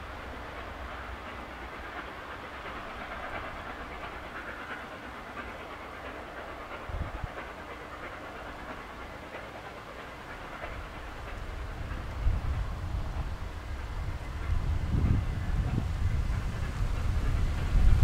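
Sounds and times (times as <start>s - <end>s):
steam locomotive exhaust: 0.0s - 18.0s
train rumble: 0.0s - 18.0s
wind buffeting microphone: 6.7s - 7.8s, 10.3s - 18.0s.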